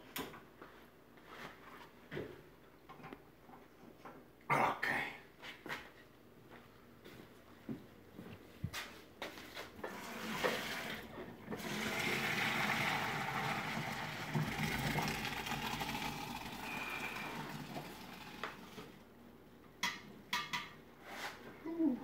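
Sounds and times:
water gushing into sink: 9.8s - 19.0s.

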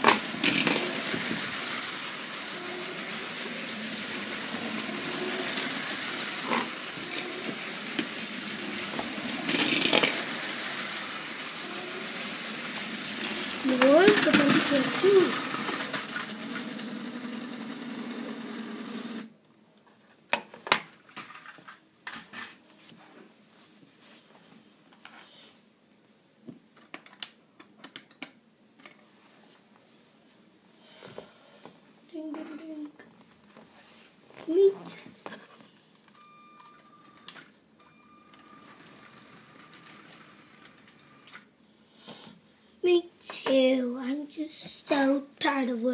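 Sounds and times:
toy train motor and wheels rattling: 0.0s - 19.3s, 38.3s - 41.5s.

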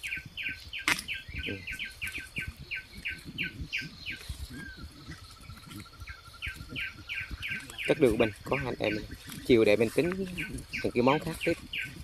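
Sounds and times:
plants rustling: 0.0s - 12.0s
bamboo shoot snapping: 0.8s - 1.1s.

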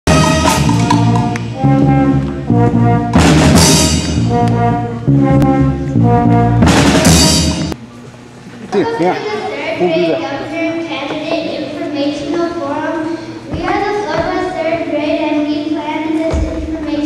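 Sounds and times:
brass instrumental music: 0.0s - 7.8s
cymbal crashes: 6.6s - 7.8s.

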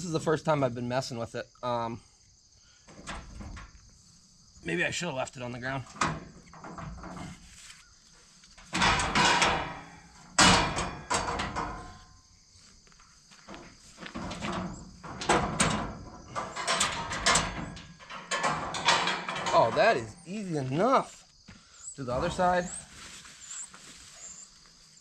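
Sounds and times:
metal cage frame clanking and rattling: 2.9s - 3.8s, 5.8s - 7.5s, 8.6s - 12.2s, 13.5s - 20.2s.

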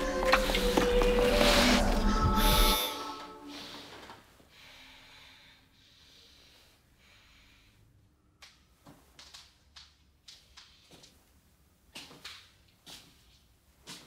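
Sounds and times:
music: 0.0s - 3.7s
person breathing slowly: 0.0s - 8.1s.

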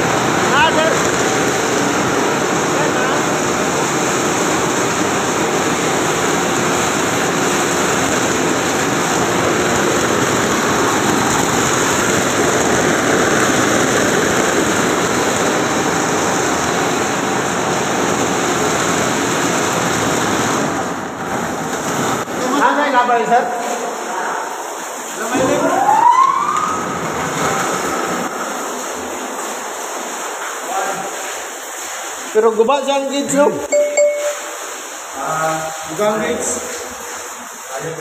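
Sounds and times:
water pump running: 0.0s - 38.0s.

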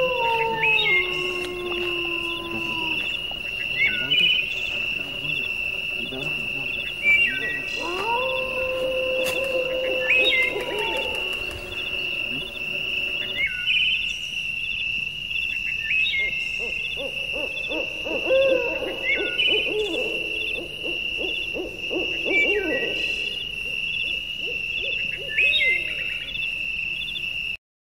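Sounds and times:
high steady trilling: 0.0s - 13.6s
low hoot-like calls: 0.0s - 13.8s, 16.1s - 26.5s
animal chirp: 0.0s - 13.9s.

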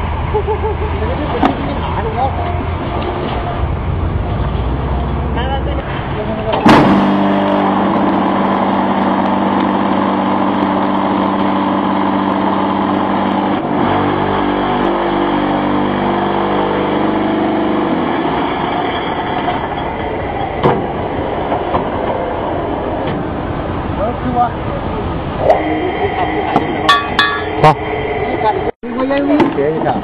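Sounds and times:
machine humming and rattling: 0.0s - 30.0s
rough machine noise: 0.0s - 30.0s
sharp metal knock: 26.9s - 27.5s.

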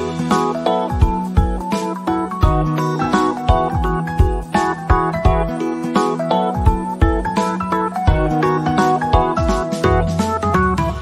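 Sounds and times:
instrumental music with keyboard melody: 0.0s - 11.0s.

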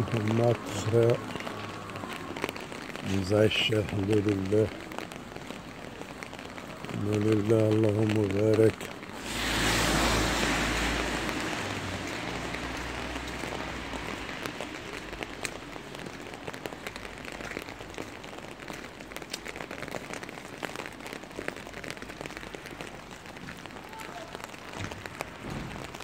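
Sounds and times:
rain falling: 0.0s - 26.0s
rushing swell with low rumble: 9.2s - 14.0s.

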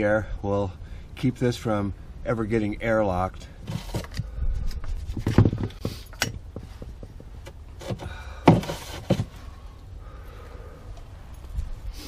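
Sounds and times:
pvc pipe knocks and scrapes: 4.8s - 9.4s.

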